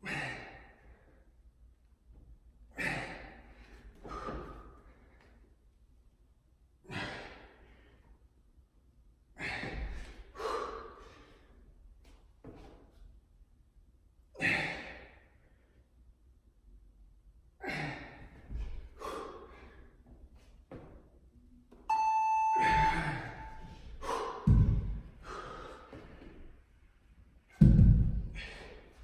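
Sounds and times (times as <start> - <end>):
hard exhaled breaths: 2.7 - 5.3, 9.4 - 11.7, 17.6 - 20.0, 23.3 - 26.5
interval timer beep: 21.9 - 23.7
dumbbells thudding on rubber floor: 24.5 - 25.1, 27.5 - 28.4.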